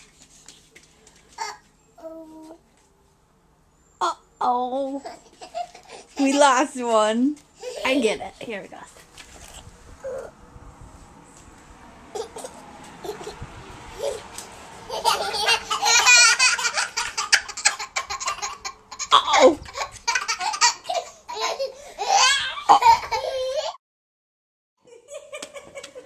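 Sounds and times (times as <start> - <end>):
toddler laughing: 4.9 - 6.6, 12.1 - 23.8.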